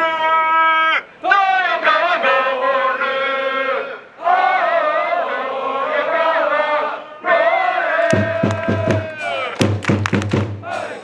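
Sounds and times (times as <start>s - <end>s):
crowd chanting in unison: 1.2s - 9.7s, 10.3s - 11.0s
drum beating rapidly: 8.0s - 11.0s.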